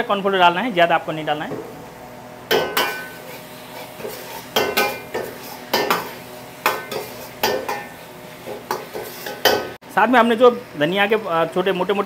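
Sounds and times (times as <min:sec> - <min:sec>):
metal utensil scraping a pan: 0:02.5 - 0:09.8.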